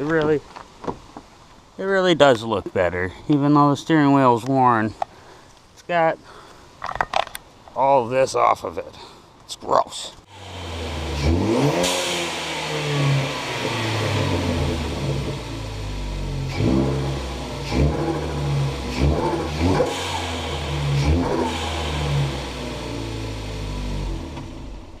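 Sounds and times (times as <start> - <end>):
car engine revving: 10.3 - 25.0.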